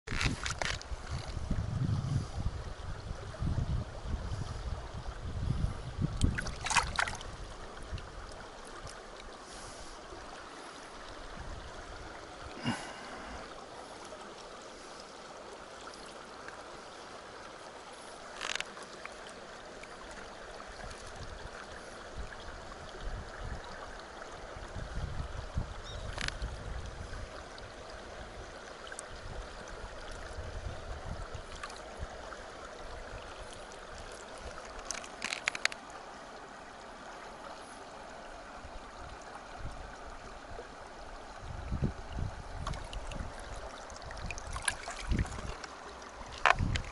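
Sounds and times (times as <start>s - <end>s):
wind gusts on microphone: 0.1s - 8.3s, 24.6s - 27.7s, 41.2s - 45.6s, 46.2s - 46.9s
river running over rocks: 6.0s - 46.9s.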